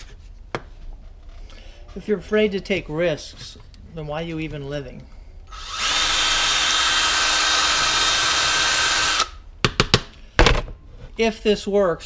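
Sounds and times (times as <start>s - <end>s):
cordless drill boring into plastic: 5.5s - 9.3s.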